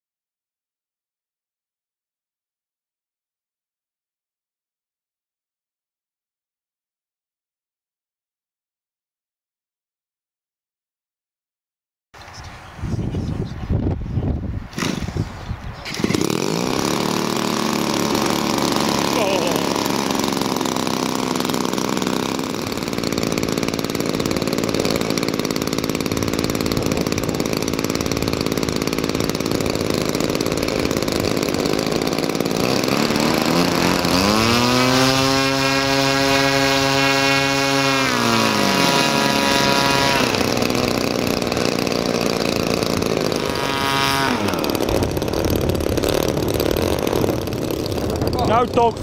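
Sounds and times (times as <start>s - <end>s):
small two-stroke engines running: 14.7s - 15.2s, 15.8s - 49.0s
engine revving to high revs: 15.9s - 48.8s.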